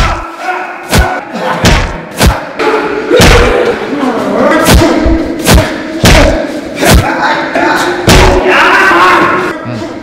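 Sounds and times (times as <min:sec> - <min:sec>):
punches and kicks thudding: 0:00.9 - 0:02.5, 0:03.2 - 0:03.7, 0:04.7 - 0:07.1, 0:08.1 - 0:08.4.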